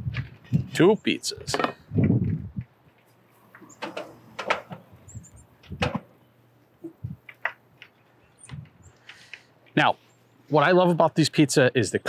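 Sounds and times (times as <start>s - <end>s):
grill knobs clicking: 3.5s - 6.2s.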